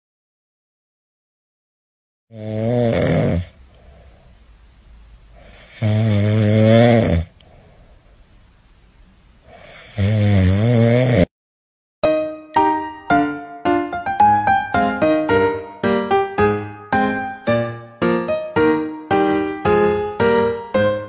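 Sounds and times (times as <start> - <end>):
dog snoring: 2.3 - 4.0, 5.4 - 7.4, 9.5 - 11.3
piano music: 12.0 - 21.0.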